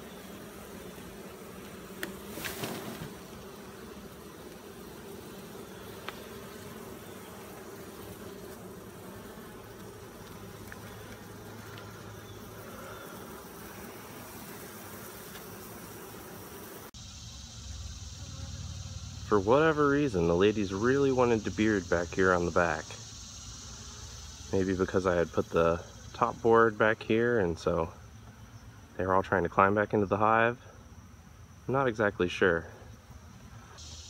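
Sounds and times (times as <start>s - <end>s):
bees buzzing: 0.0s - 34.0s.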